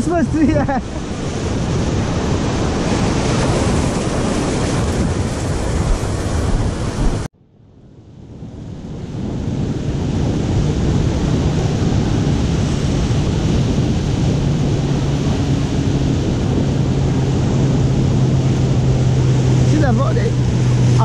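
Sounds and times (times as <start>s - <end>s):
surf breaking on rocks: 0.0s - 7.3s
wind buffeting microphone: 0.0s - 21.0s.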